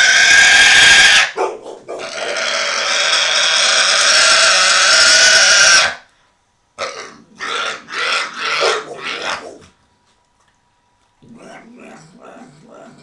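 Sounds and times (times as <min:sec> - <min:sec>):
pig squealing: 0:00.0 - 0:06.1, 0:06.8 - 0:09.7.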